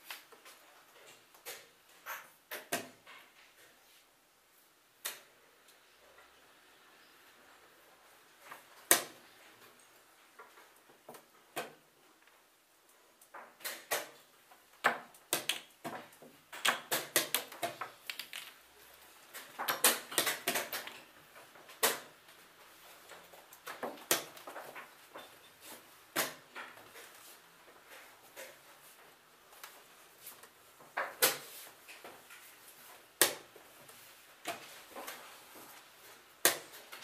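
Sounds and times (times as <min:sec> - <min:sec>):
chess pieces on wooden board: 0:14.8 - 0:18.7, 0:19.3 - 0:22.1.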